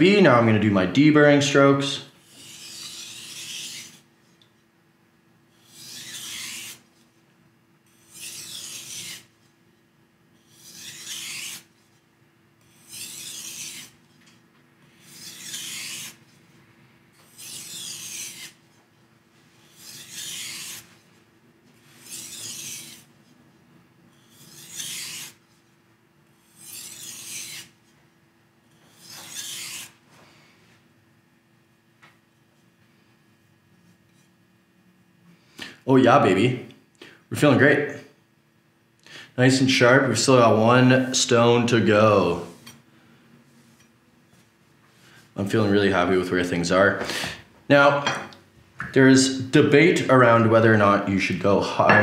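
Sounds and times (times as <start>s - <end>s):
faint steady hum: 0.0s - 52.0s
knife scraping on whetstone: 2.2s - 4.0s, 5.6s - 6.8s, 7.9s - 9.4s, 10.4s - 11.9s, 12.6s - 16.2s, 17.2s - 18.6s, 19.6s - 21.0s, 21.8s - 23.1s, 24.1s - 25.5s, 26.4s - 27.8s, 28.8s - 30.0s.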